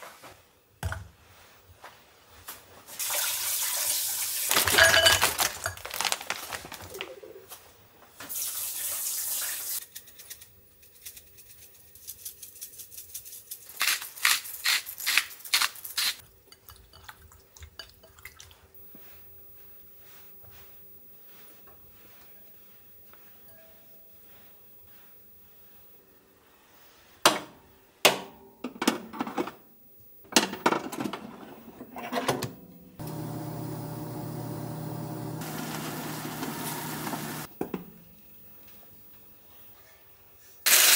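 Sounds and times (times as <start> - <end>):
tap water running: 3.0 - 4.7, 8.2 - 9.8, 33.0 - 37.5
spice jar shaking: 9.8 - 16.1.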